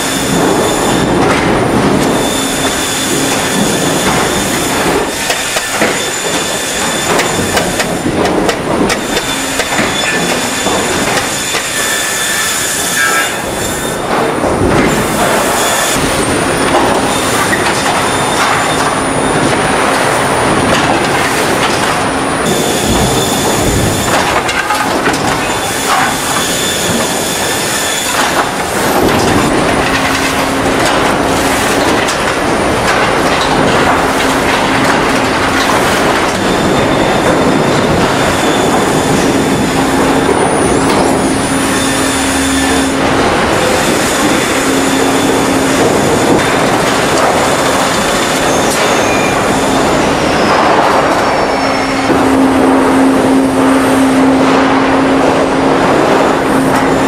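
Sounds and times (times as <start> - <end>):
low machine hum: 0.0 - 57.0
sawmill machinery clatter: 0.0 - 57.0
thin high whines: 22.4 - 24.8, 36.4 - 46.2.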